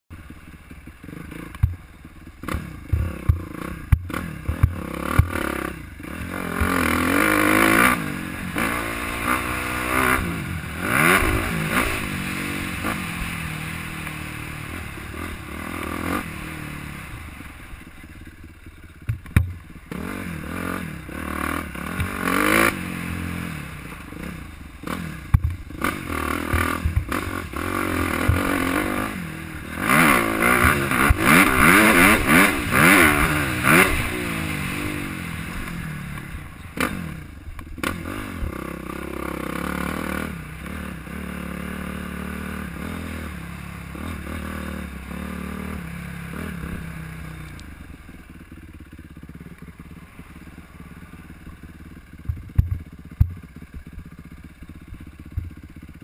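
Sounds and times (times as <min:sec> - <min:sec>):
dirt bike engine revving: 0:00.2 - 0:56.0
knocks and clatter from bumps: 0:52.2 - 0:53.4.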